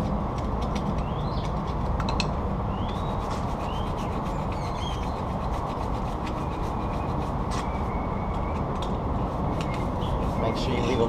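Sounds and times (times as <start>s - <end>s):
bird chirps: 1.0s - 1.6s, 2.7s - 5.3s, 6.4s - 8.8s, 9.5s - 11.0s
scrubber rubbing: 3.1s - 7.6s, 9.3s - 11.0s.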